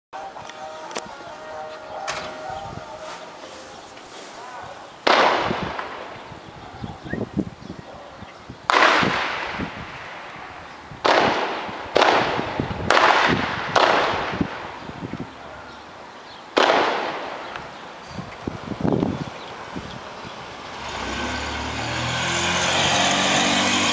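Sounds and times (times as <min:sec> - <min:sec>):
gunshots with long echo: 0:05.0 - 0:06.1, 0:08.7 - 0:10.4, 0:11.0 - 0:14.8, 0:16.6 - 0:17.5.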